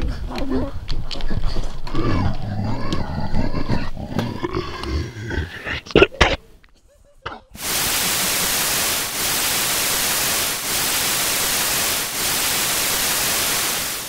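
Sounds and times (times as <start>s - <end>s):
tv static hiss: 7.6s - 14.0s.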